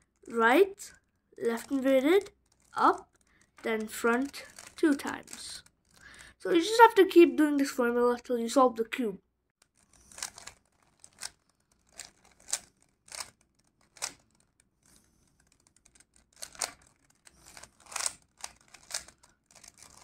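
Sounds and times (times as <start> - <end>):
puzzle cube layers clicking: 1.4 - 6.2, 9.6 - 20.0.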